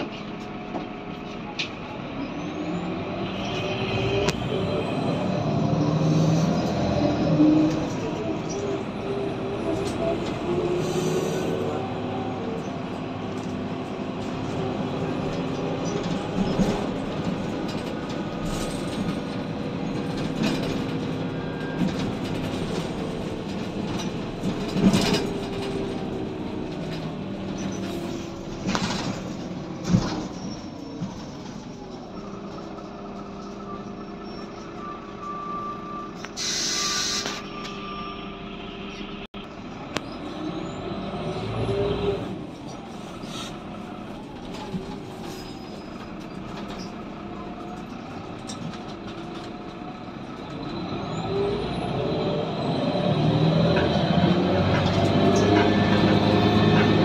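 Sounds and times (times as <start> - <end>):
bus engine drone: 0.0 - 57.0
air hiss: 36.4 - 37.4.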